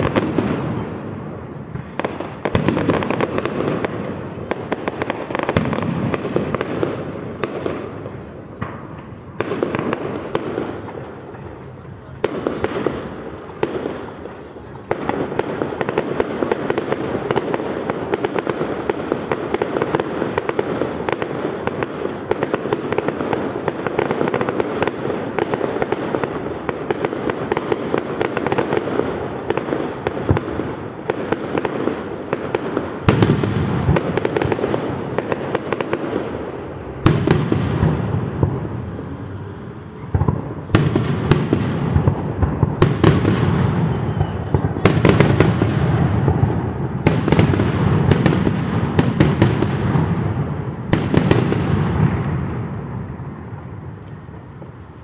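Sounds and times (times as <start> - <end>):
fireworks crackling: 0.0 - 55.0.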